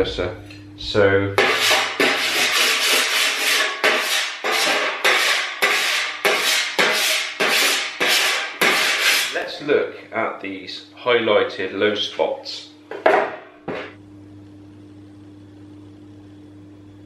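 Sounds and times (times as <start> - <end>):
file scraping steel panel: 1.4 - 9.4.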